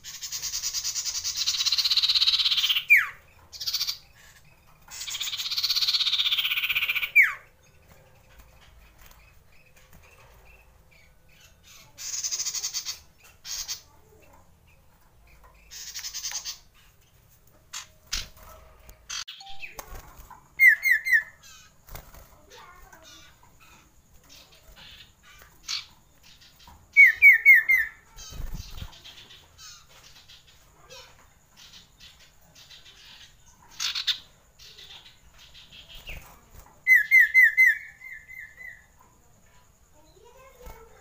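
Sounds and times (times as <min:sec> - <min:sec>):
bird trilling song: 0:00.0 - 0:41.0.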